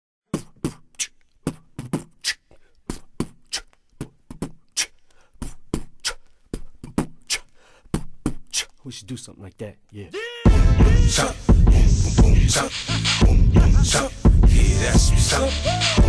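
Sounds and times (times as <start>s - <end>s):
hip hop beat: 10.2s - 16.0s.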